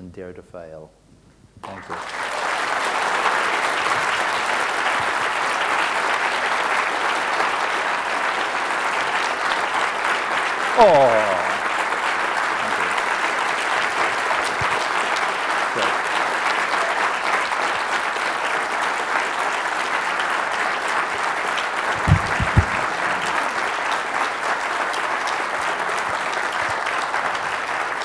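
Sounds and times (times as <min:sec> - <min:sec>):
audience applauding: 0:01.6 - 0:28.0
dull low thumps: 0:22.0 - 0:23.3.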